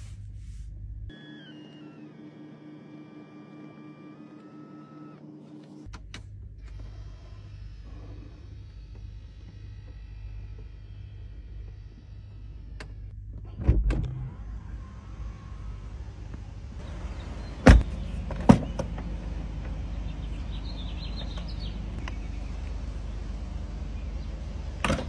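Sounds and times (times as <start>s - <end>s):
low mechanical hum: 0.0s - 25.0s
car doors thumping: 17.6s - 19.0s.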